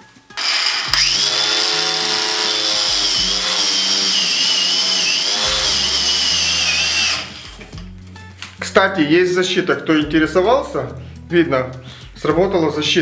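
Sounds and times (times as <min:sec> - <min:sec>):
angle grinder whine: 0:00.3 - 0:07.8
wire brush scratching steel: 0:00.3 - 0:07.8.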